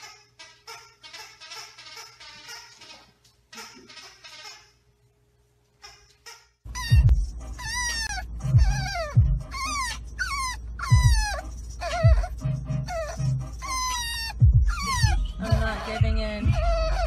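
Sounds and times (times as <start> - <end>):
puppy whining: 5.8 - 17.0
car low rumble: 6.9 - 13.6.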